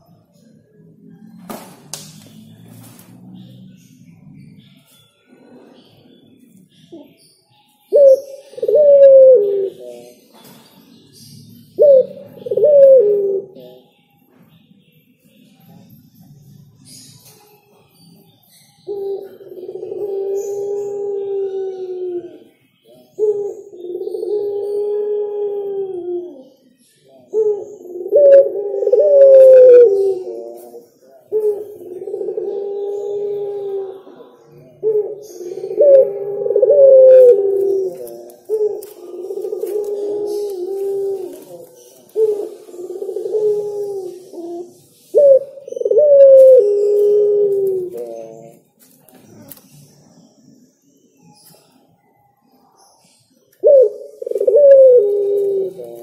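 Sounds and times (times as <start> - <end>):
dove cooing: 7.8 - 10.6, 11.2 - 13.8, 18.8 - 26.6, 27.3 - 48.6, 53.6 - 56.0.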